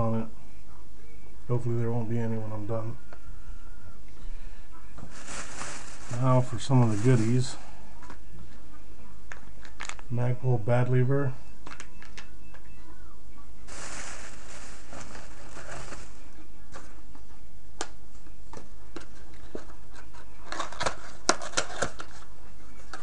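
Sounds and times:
steady low hum: 0.0s - 21.3s
packaging rustling: 5.0s - 7.7s, 13.7s - 16.9s.

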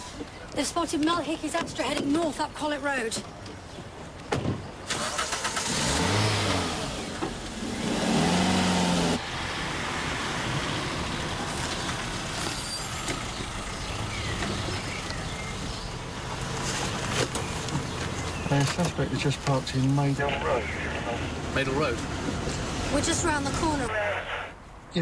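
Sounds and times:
street background: 0.0s - 25.0s
car engine revving: 4.9s - 23.9s.

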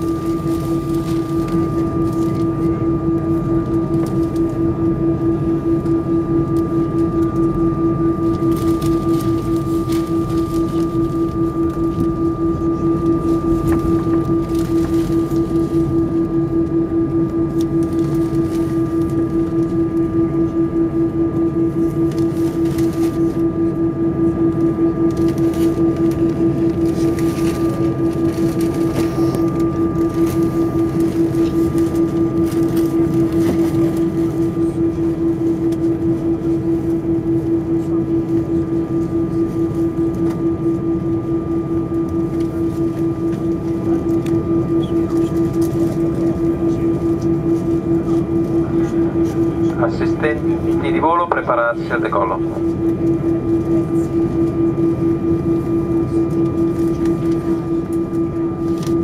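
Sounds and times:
aircraft engine hum: 0.0s - 59.0s.

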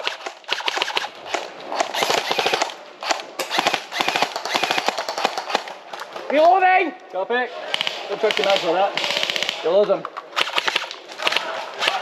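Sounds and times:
airsoft rifles firing bursts: 0.0s - 5.8s, 7.7s - 12.0s.

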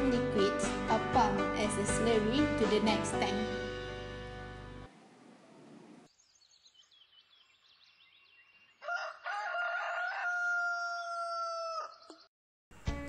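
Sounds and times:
rooster crowing: 8.8s - 12.1s.

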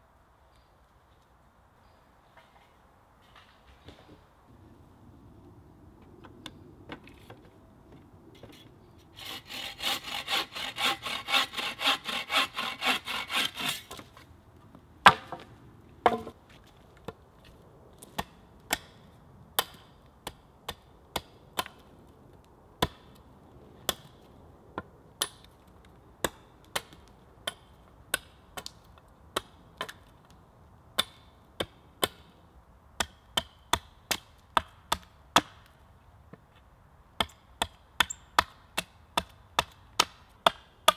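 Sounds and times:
saw cutting wood: 9.1s - 14.1s
hatchet chopping wood: 9.5s - 14.0s, 18.1s - 19.0s, 19.6s - 21.8s, 22.8s - 23.1s, 25.2s - 25.5s, 26.2s - 30.0s, 31.0s - 32.3s, 33.0s - 35.7s, 37.2s - 40.9s
wooden knocks: 16.0s - 16.4s.

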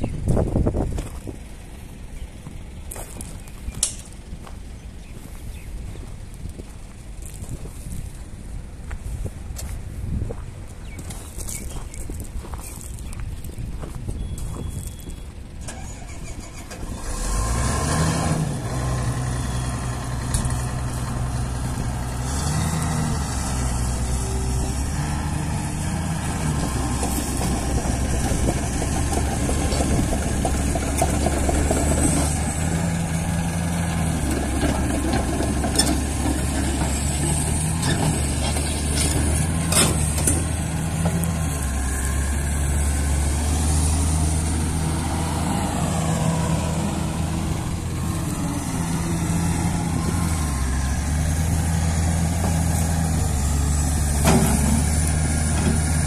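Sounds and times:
excavator diesel engine: 13.8s - 56.0s.

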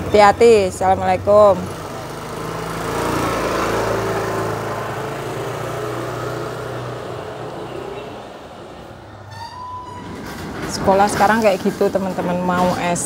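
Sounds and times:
scooter engine pulling away: 0.0s - 9.3s.

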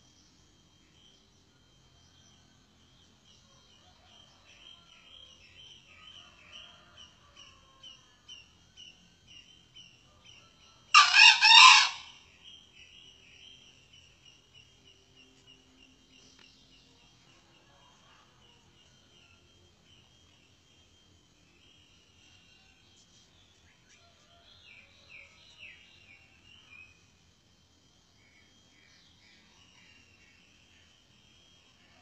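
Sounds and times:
faint insect chirping: 0.0s - 32.0s
rooster crowing: 10.9s - 12.2s.

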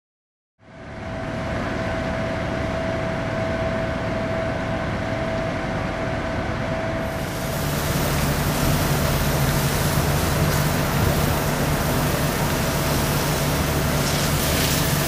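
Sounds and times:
pump machinery whine: 0.6s - 15.0s
truck engine rumble: 4.9s - 15.0s.

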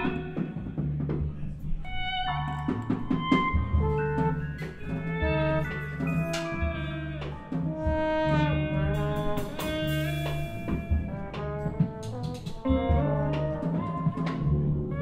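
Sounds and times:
drums with cymbal hits: 0.0s - 15.0s
electric guitar: 0.0s - 15.0s
upright bass: 0.0s - 15.0s
trombone melody: 1.8s - 15.0s.

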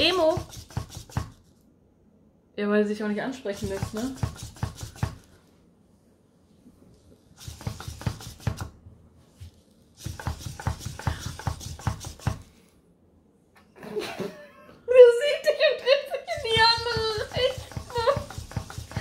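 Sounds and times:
robot motors clicking and tapping: 3.5s - 5.3s, 16.4s - 19.0s.

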